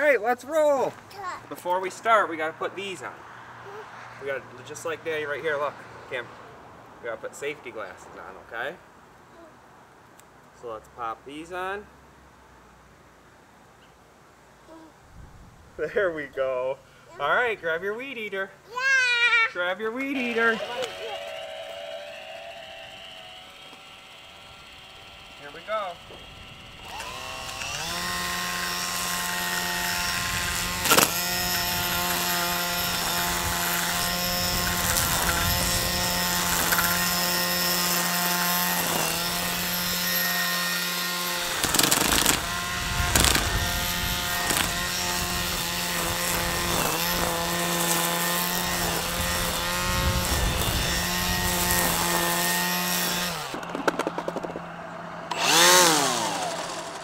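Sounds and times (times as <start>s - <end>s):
string trimmer whining: 20.0s - 57.0s.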